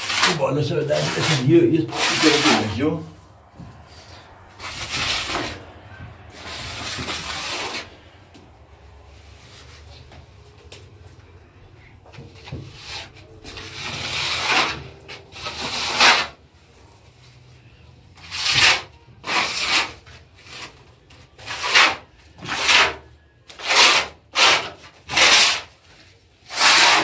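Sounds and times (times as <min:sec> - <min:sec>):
gloved hand rubbing plaster wall: 0:00.0 - 0:08.3, 0:12.1 - 0:16.4, 0:18.2 - 0:27.0.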